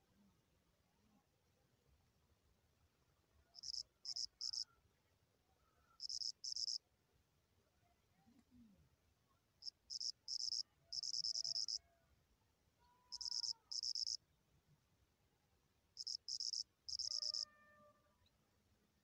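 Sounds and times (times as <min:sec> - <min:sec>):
cricket chirping: 0:03.6 - 0:04.7, 0:06.0 - 0:06.8, 0:09.6 - 0:11.8, 0:13.1 - 0:14.2, 0:16.0 - 0:17.5.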